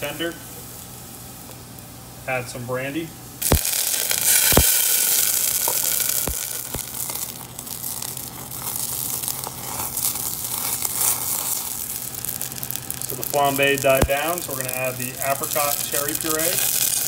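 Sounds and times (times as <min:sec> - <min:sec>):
liquid sizzling in a pan: 0:03.4 - 0:17.0.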